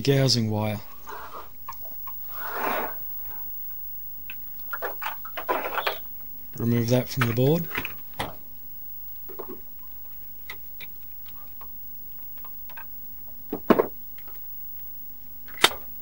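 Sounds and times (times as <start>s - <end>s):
sharp wire snaps: 15.5s - 15.9s.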